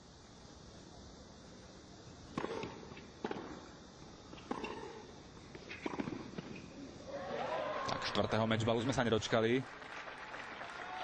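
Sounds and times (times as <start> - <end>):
racket hitting tennis ball: 2.3 - 3.6, 4.4 - 6.6
tennis ball bouncing: 2.3 - 3.7, 4.3 - 6.7.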